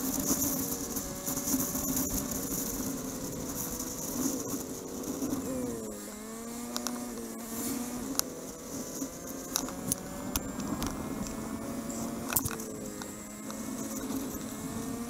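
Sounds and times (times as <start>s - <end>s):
fabric rubbing on camera: 0.0s - 9.9s
motorcycle engine running: 0.0s - 15.0s.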